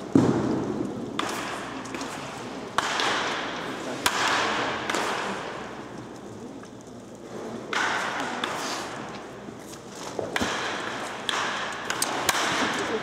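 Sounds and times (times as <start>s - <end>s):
bat cracking baseballs: 0.0s - 13.0s
hissing background noise: 0.0s - 13.0s.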